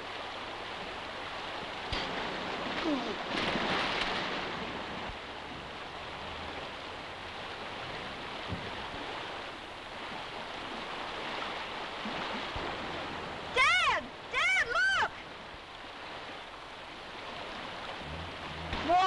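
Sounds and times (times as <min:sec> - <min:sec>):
river water rushing over rocks: 0:00.0 - 0:19.0.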